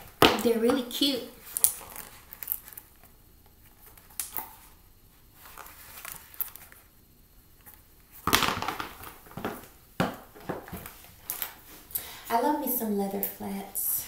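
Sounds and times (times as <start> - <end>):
shoes set down on tile floor: 8.2 - 11.5.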